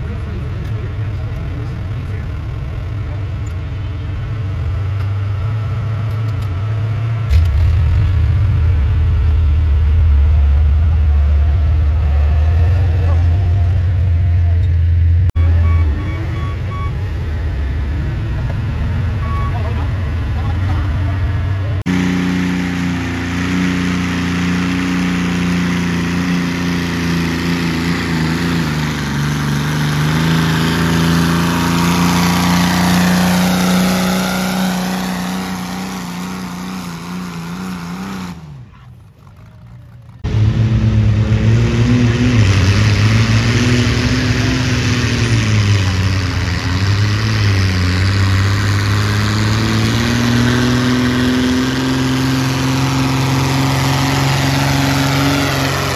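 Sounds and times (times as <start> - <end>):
tractor engine revving: 0.0 - 55.9
tractor engine running under load: 21.8 - 38.3, 42.5 - 55.9.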